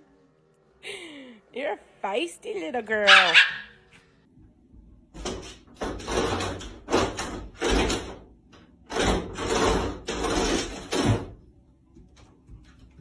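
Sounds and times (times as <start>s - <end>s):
dog scratching and rattling door: 5.2s - 11.4s.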